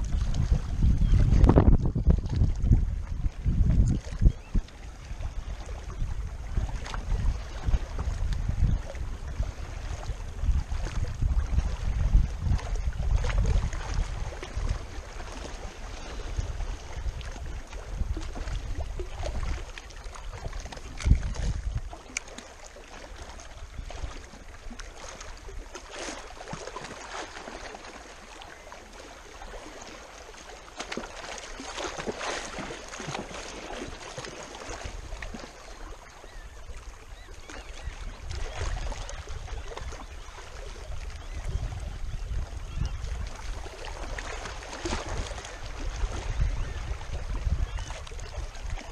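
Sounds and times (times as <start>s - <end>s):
wind buffeting microphone: 0.0s - 22.2s, 36.3s - 48.9s
small waves lapping on rocks: 0.0s - 48.9s.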